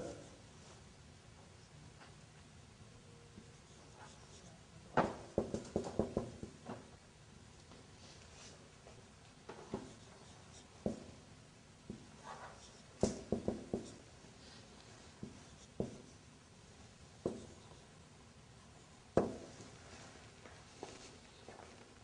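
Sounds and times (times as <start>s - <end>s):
marker tapping on whiteboard: 5.0s - 6.8s, 9.5s - 11.2s, 11.9s - 14.0s, 15.2s - 16.1s, 17.2s - 17.6s, 19.1s - 19.5s.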